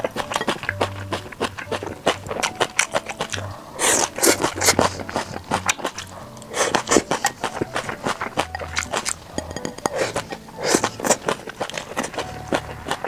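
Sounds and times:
chewing food: 0.0 - 13.0
chopsticks clicking on glass bowl: 5.5 - 10.4.

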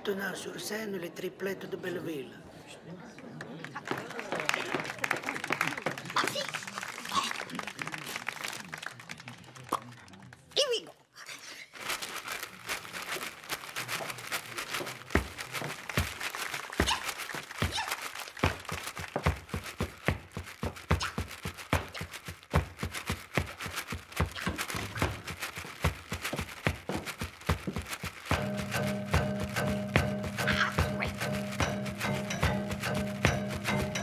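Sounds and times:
scratchy strokes: 11.9 - 34.0
shoe stamping on wooden stage: 16.8 - 34.0.

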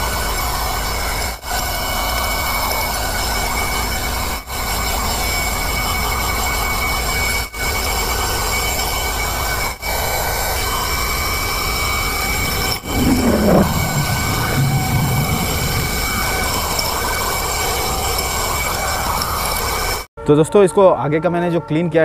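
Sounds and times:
falling tone: 12.8 - 17.0.

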